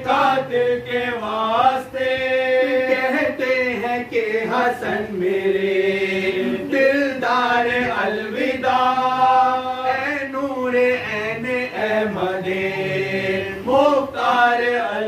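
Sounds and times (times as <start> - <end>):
men chanting a lament in unison: 0.0 - 15.0.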